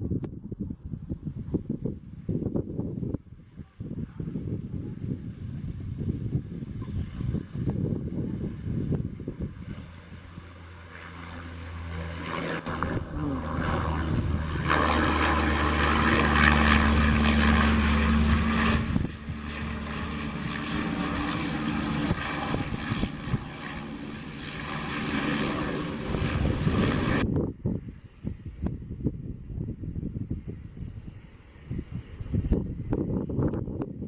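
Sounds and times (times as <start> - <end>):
turboprop engine droning: 2.5 - 30.1.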